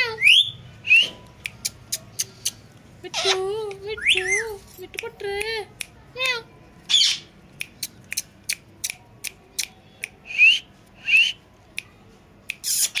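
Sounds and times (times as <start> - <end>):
parakeet squawking: 3.1 - 4.5, 6.9 - 7.3, 12.7 - 13.0.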